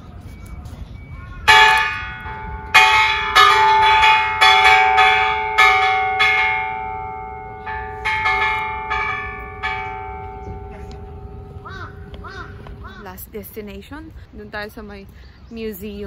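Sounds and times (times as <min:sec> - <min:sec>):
bell ringing: 0:00.3 - 0:12.2.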